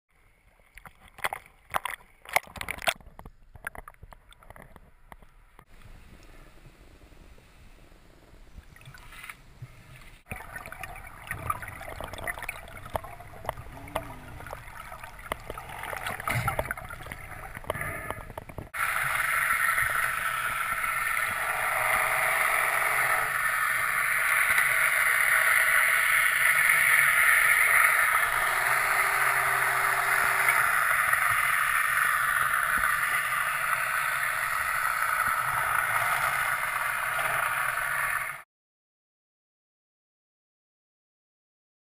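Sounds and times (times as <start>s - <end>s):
underwater crackling and clicking: 0.6s - 6.3s, 8.6s - 21.4s, 30.5s - 38.3s.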